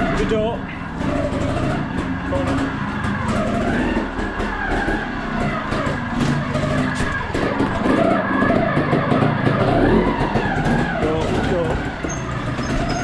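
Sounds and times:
motorbike engine revving: 0:00.0 - 0:13.0.

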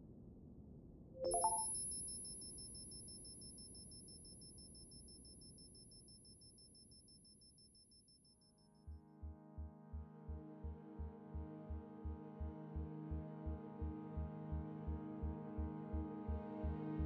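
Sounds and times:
rising electronic beeps: 0:01.2 - 0:01.7.

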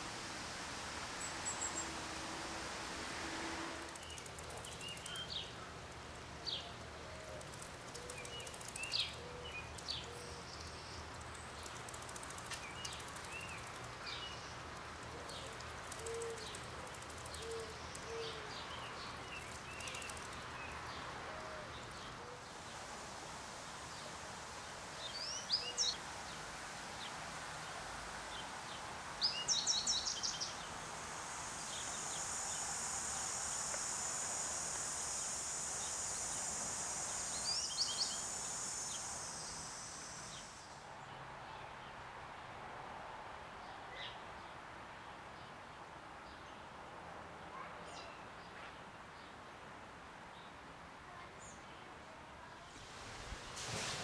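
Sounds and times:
high insect buzz: 0:00.0 - 0:05.5, 0:28.3 - 0:40.8
birds chirping: 0:07.4 - 0:22.7.

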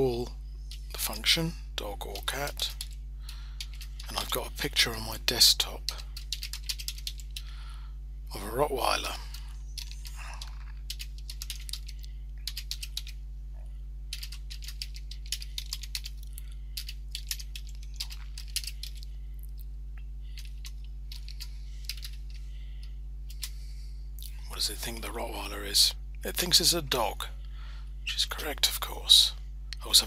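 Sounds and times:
steady low hum: 0:00.0 - 0:30.0
computer keyboard typing: 0:02.1 - 0:04.4, 0:05.9 - 0:07.5, 0:09.7 - 0:13.2, 0:14.1 - 0:19.1, 0:20.3 - 0:22.4.

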